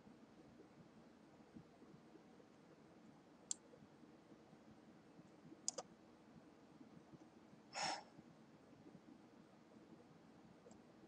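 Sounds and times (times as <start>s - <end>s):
computer mouse clicks: 5.6s - 5.9s
short breath: 7.7s - 8.1s.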